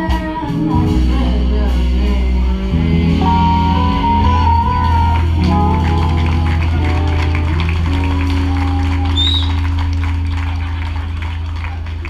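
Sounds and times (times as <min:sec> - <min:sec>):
drum kit: 0:00.0 - 0:12.0
electric guitar: 0:00.0 - 0:12.0
low bass notes: 0:00.0 - 0:12.0
high held melody note: 0:02.4 - 0:11.0.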